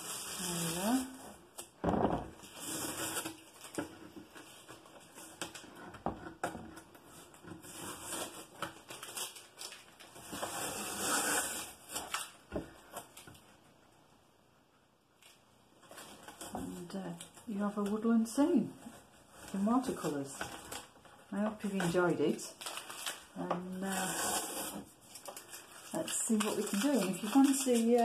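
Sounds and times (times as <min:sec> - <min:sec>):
masking tape ripping off paper: 0:07.6 - 0:12.4, 0:22.5 - 0:28.0
tape crumpled in hand: 0:08.0 - 0:10.2, 0:22.5 - 0:23.4, 0:24.4 - 0:28.0.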